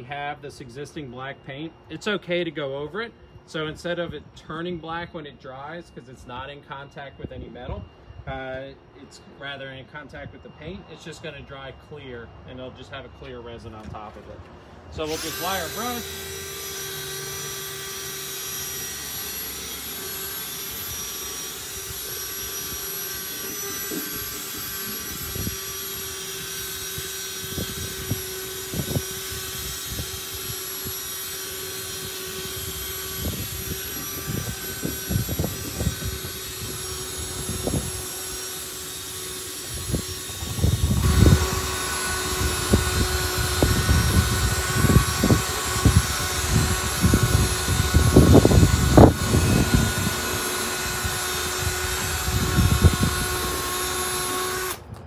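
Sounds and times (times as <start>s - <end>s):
drill motor whine: 0.0s - 55.0s.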